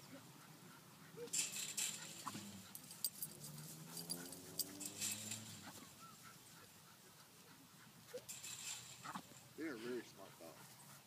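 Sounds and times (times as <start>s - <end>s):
light clicks and rattles: 1.3s - 5.8s, 8.1s - 9.6s.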